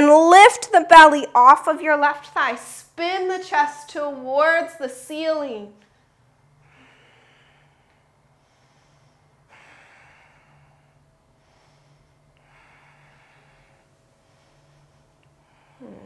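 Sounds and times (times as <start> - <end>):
person breathing slowly: 6.6 - 16.0.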